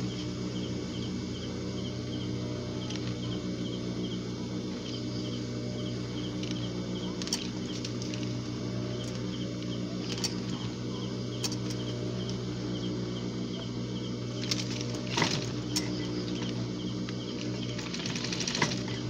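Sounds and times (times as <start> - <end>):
sewing machine motor humming: 0.0 - 19.0.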